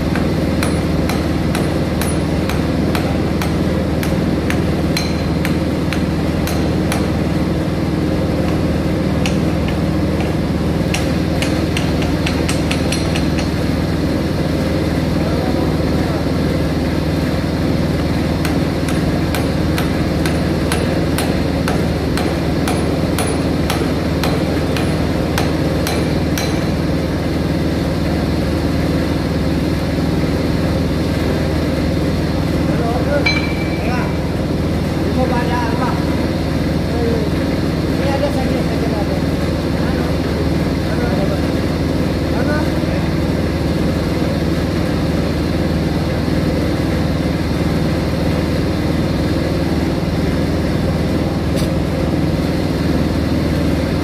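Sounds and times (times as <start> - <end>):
low machinery hum: 0.0 - 54.0
hammer tapping on metal: 0.1 - 7.2, 8.4 - 13.6, 18.4 - 26.9, 33.2 - 34.0.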